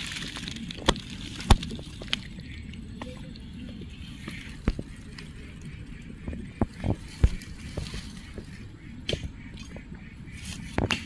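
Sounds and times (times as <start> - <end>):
dry straw crackling: 0.0 - 2.5, 6.6 - 9.2
low steady rumble: 0.0 - 11.0.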